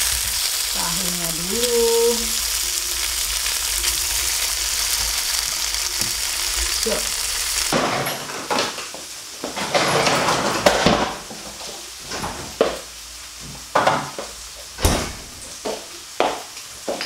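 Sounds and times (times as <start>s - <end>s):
tofu sizzling in hot oil: 0.0s - 7.8s
dishes and utensils knocking: 13.8s - 14.3s.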